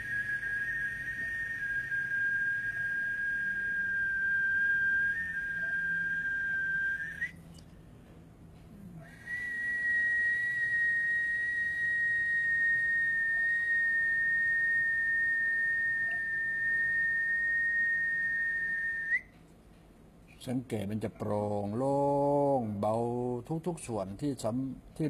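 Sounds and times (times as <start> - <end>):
person whistling high note: 0.0 - 7.4, 9.0 - 19.3.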